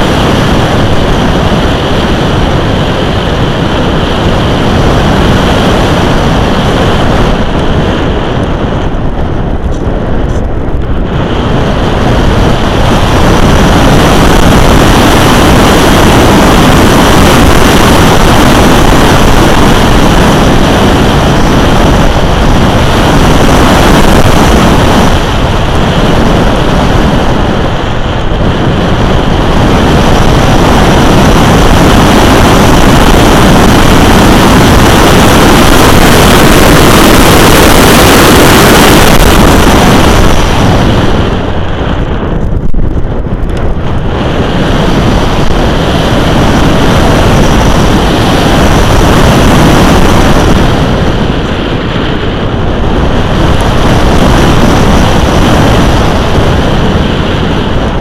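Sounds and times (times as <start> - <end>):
wind rush over microphone: 0.0 - 58.0.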